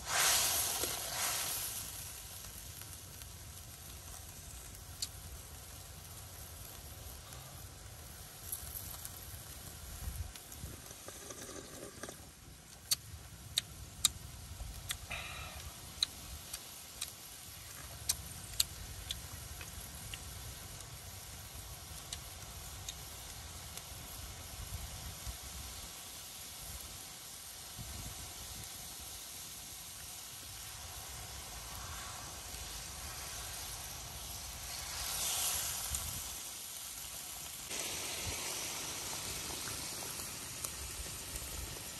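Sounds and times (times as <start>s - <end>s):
loud hissing as fish enters broth: 0.0s - 41.9s
low rumble of fire: 0.0s - 41.9s
soup boiling and bubbling: 0.0s - 41.9s.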